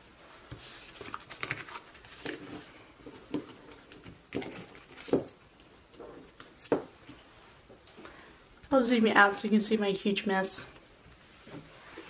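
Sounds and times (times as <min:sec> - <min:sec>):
paper rustling and tapping: 0:00.5 - 0:05.7.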